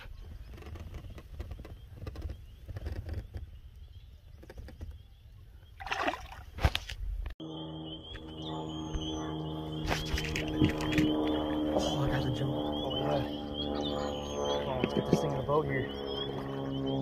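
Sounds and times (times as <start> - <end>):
wind rumble on microphone: 0.0 - 5.6, 8.2 - 14.0
fish splashing into water: 5.8 - 6.8
steady multi-pitched hum: 7.4 - 17.0.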